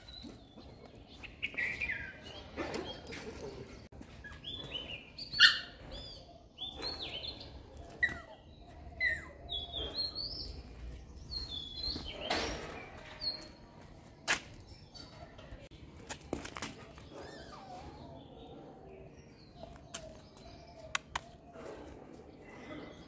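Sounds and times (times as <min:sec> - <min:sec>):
birds chirping: 0:00.0 - 0:23.0
sharp click: 0:20.9 - 0:21.4.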